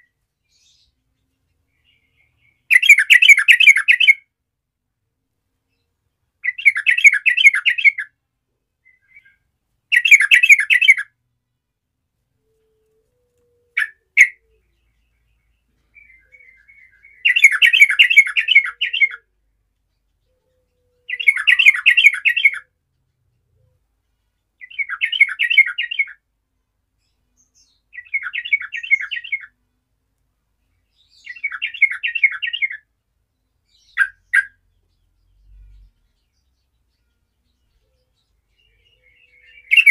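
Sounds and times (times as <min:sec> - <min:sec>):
bird singing bubbly phrases: 0:21.1 - 0:22.6, 0:38.6 - 0:39.9.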